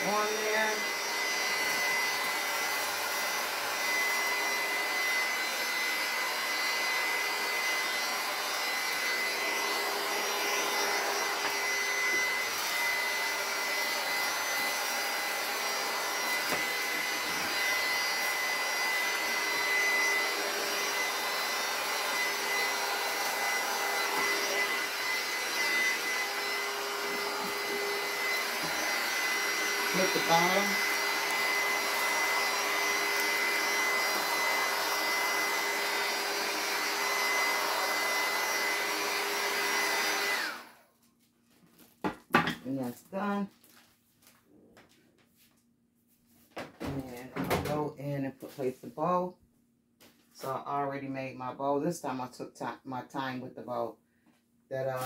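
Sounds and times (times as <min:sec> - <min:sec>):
heat gun whining: 0:00.0 - 0:40.8.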